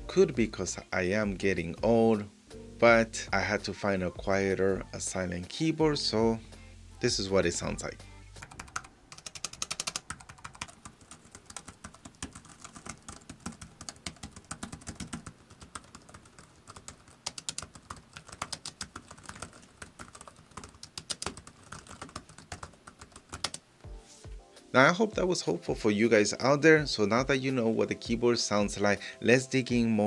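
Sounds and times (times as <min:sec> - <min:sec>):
fast keyboard typing: 0:08.4 - 0:23.6.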